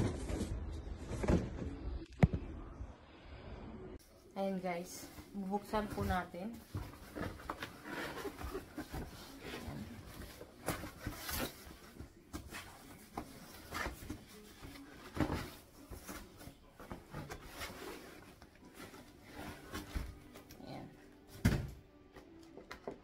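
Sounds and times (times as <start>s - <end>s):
cardboard flaps rustling and scraping: 0.0s - 1.8s, 5.8s - 20.4s.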